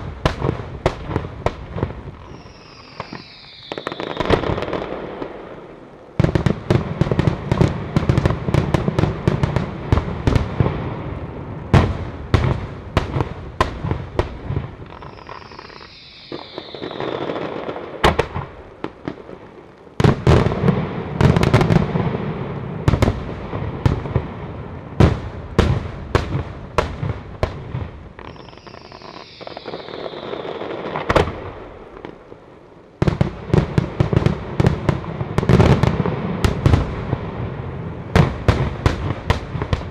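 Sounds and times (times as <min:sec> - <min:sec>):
falling firework whistle: 0:02.2 - 0:05.4, 0:14.8 - 0:18.5, 0:28.2 - 0:31.5.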